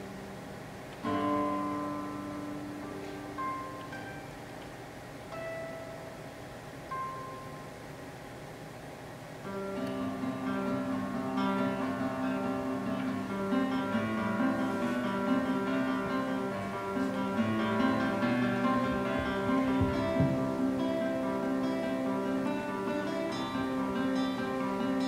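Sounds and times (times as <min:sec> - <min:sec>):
solo classical guitar: 0:00.0 - 0:07.7, 0:09.4 - 0:25.0.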